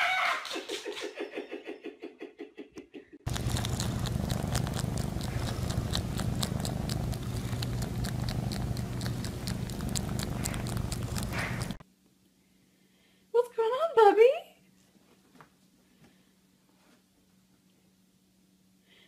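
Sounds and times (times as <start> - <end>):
cat licking clicks: 3.3 - 11.8
cat purring: 3.3 - 11.8.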